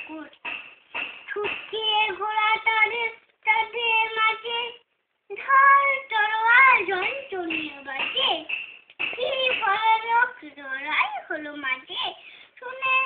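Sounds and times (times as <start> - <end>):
toddler reciting in sing-song voice: 1.3 - 8.5, 9.2 - 13.0.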